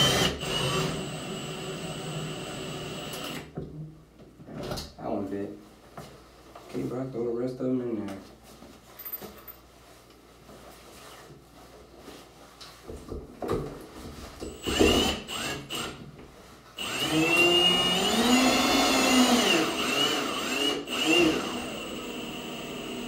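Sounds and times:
cordless drill driving screws: 0:00.0 - 0:03.5, 0:14.5 - 0:16.0, 0:16.8 - 0:23.0.

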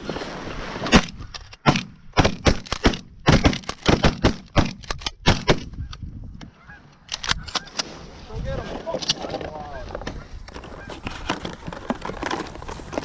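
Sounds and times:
shotguns firing rapidly: 0:01.6 - 0:05.7.

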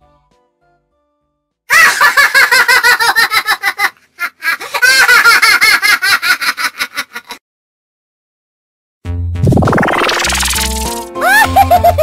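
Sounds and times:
high-pitched rapid laughter: 0:11.2 - 0:12.0.

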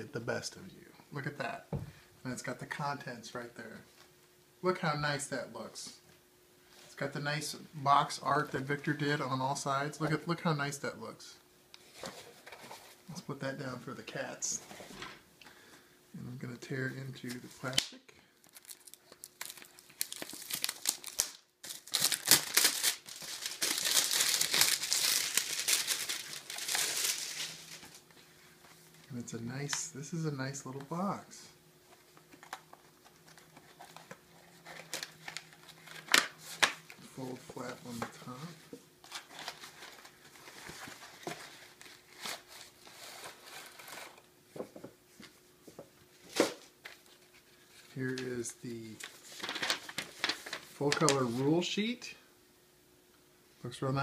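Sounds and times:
plastic wrap crinkling: 0:18.4 - 0:28.1, 0:48.9 - 0:51.3.

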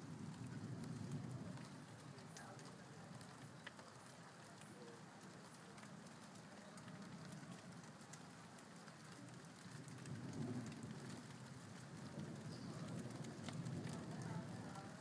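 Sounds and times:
low thunder rumble: 0:00.0 - 0:03.5, 0:09.3 - 0:15.0
rain falling steadily: 0:00.0 - 0:15.0
sharp ticks of raindrops: 0:00.0 - 0:15.0.

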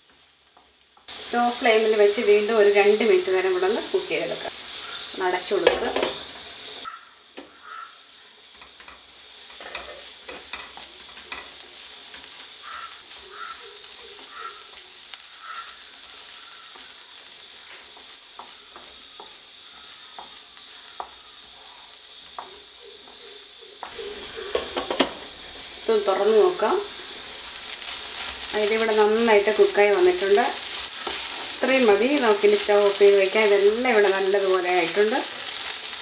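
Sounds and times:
vegetables sizzling in oil: 0:00.0 - 0:36.0
wooden spatula scraping pan: 0:27.9 - 0:35.9.

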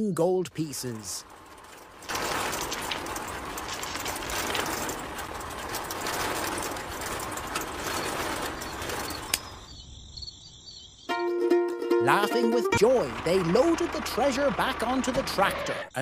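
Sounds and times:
sifting machine rattling: 0:00.6 - 0:09.7, 0:12.1 - 0:15.7
sand and gravel pouring: 0:00.7 - 0:09.6.

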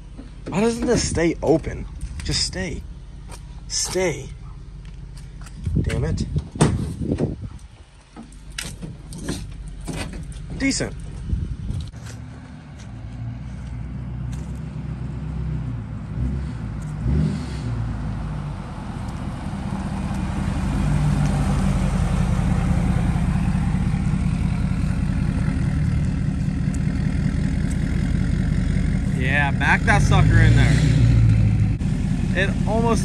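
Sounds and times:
diesel pickup engine driving past: 0:12.2 - 0:33.0.

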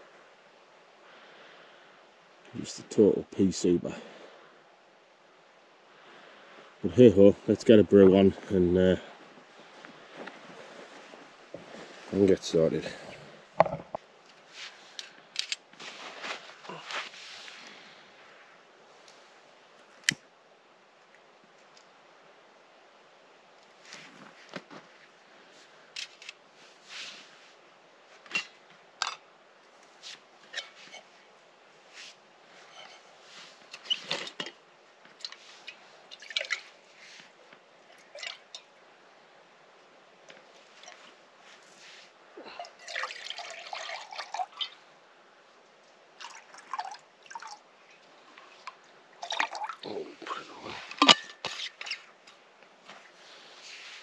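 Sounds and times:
water pouring into metal pot: 0:42.7 - 0:44.8, 0:46.2 - 0:47.6, 0:49.2 - 0:49.8.

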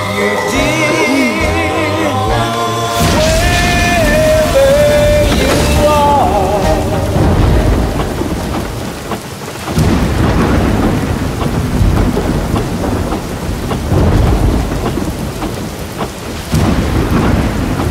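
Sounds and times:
song playing: 0:00.0 - 0:08.2
heavy rain: 0:00.0 - 0:17.9
rolling thunder: 0:02.3 - 0:17.9.

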